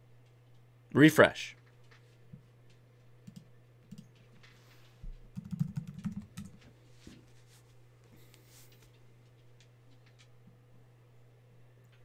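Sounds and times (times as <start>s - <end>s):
low steady hum: 0.0s - 12.0s
keyboard typing and clicking: 3.2s - 4.2s, 5.3s - 6.6s.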